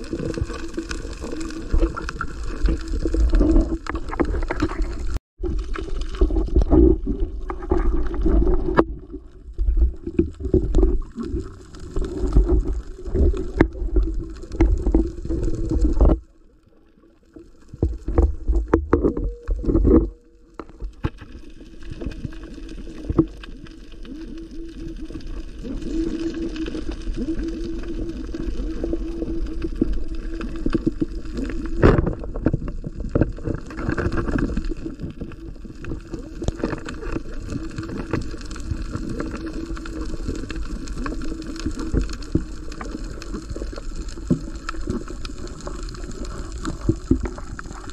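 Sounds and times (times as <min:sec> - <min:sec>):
underwater sloshing and gurgling: 0:00.0 - 0:47.9
knocks underwater: 0:03.1 - 0:11.2, 0:17.8 - 0:21.2.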